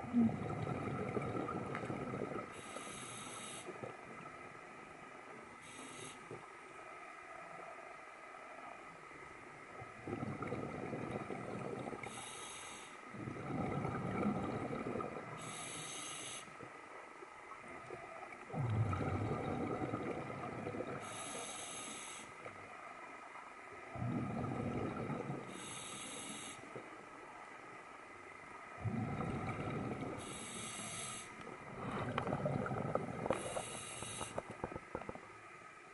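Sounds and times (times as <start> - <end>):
exhaled bubbles gurgling: 0.0 - 4.7, 9.7 - 12.4, 13.1 - 16.7, 17.5 - 21.9, 23.8 - 26.9, 28.7 - 35.4.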